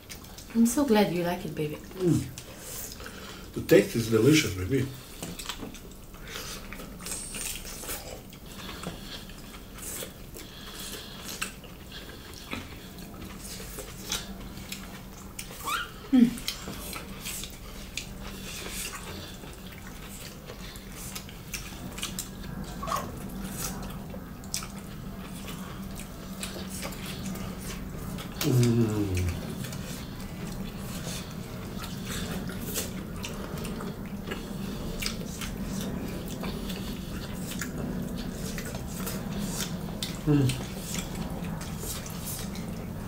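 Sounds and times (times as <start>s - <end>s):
wet chewing and lip-smacking: 0.0s - 0.7s, 1.8s - 43.0s
faint steady hum: 0.0s - 43.0s.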